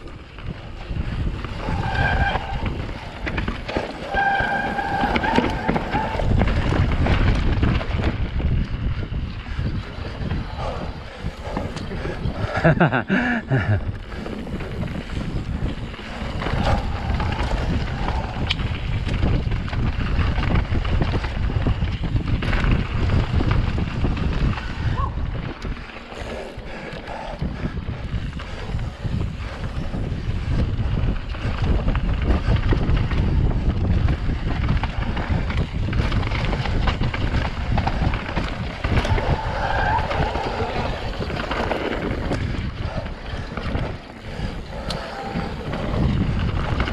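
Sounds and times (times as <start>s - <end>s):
bike rattling and knocking: 0.0s - 46.9s
bike tyres rumbling on dirt: 0.0s - 46.9s
wind buffeting microphone: 0.0s - 46.9s.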